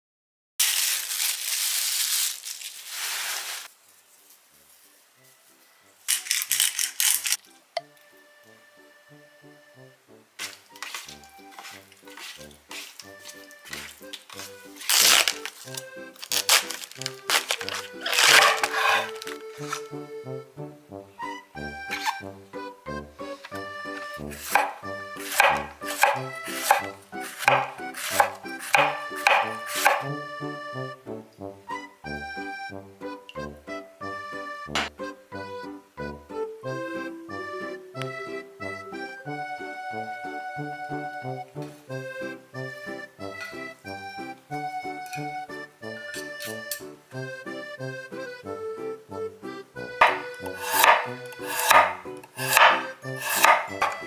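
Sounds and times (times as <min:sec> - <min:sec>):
plastic bag crinkling: 0:00.6 - 0:04.9, 0:06.0 - 0:07.6, 0:10.4 - 0:19.9
soft background music: 0:04.5 - 0:54.0
seasoning clicks and rattles: 0:06.1 - 0:07.6
knife cutting cabbage on wooden board: 0:10.4 - 0:19.9, 0:21.9 - 0:22.2, 0:24.3 - 0:30.2, 0:50.0 - 0:54.0.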